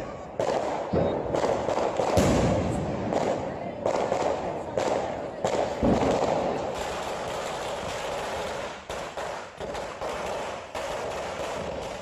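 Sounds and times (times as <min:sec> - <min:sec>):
fireworks crackling hiss: 0:00.0 - 0:12.0
firecracker pops: 0:00.4 - 0:12.0.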